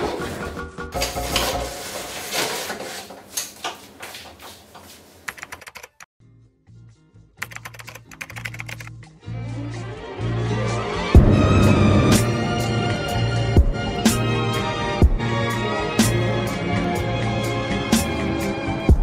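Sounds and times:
keyboard typing clicks: 0:05.3 - 0:06.1, 0:07.4 - 0:08.9
background music with bass line: 0:08.8 - 0:19.0.

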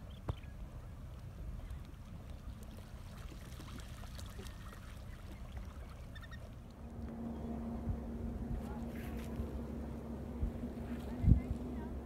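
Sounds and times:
shorebirds calling: 0:00.0 - 0:12.0
steady low hum: 0:00.0 - 0:12.0
wind rumble on microphone: 0:06.7 - 0:12.0.

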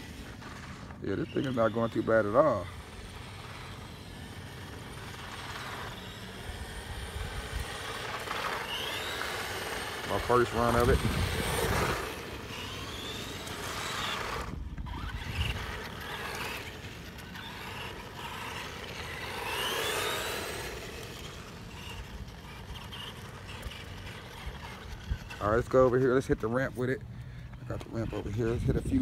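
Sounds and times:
electric motor whining: 0:00.0 - 0:29.0.

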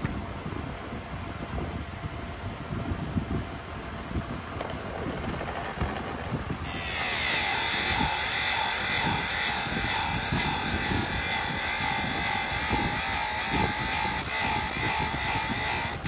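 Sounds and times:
rotary sharpening tool whining: 0:05.2 - 0:16.0.

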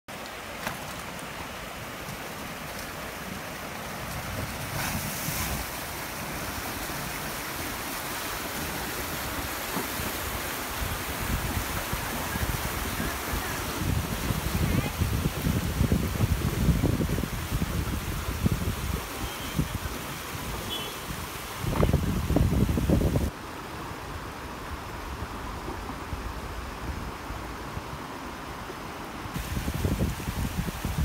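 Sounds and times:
river water rushing over stones: 0:00.1 - 0:31.0
wind buffeting microphone: 0:08.5 - 0:23.3, 0:29.3 - 0:31.0.

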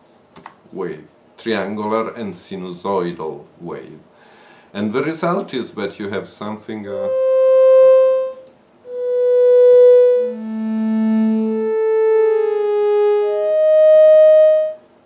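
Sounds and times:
synthesizer single notes: 0:07.0 - 0:14.8.

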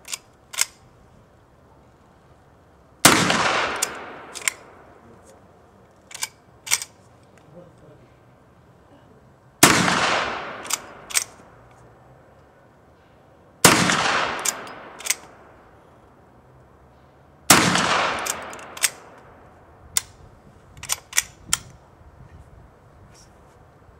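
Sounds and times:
rifle lever clicks: 0:00.0 - 0:00.8, 0:03.7 - 0:04.7, 0:06.1 - 0:07.5, 0:10.6 - 0:11.4, 0:14.2 - 0:15.4, 0:17.8 - 0:19.3, 0:20.8 - 0:21.8
rifle shots: 0:03.0 - 0:05.0, 0:09.6 - 0:11.5, 0:13.6 - 0:15.5, 0:17.5 - 0:19.4.

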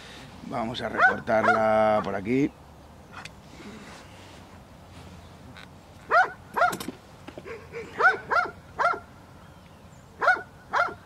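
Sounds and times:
dog barking: 0:00.9 - 0:01.7, 0:06.1 - 0:06.8, 0:07.5 - 0:09.1, 0:10.2 - 0:11.0.

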